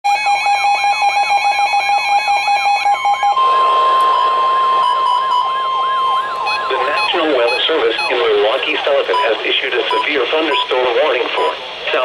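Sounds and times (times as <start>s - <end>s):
warbling siren: 0.1s - 10.4s
steady alarm tone: 0.1s - 11.6s
rapidly pulsing beep: 2.6s - 11.6s.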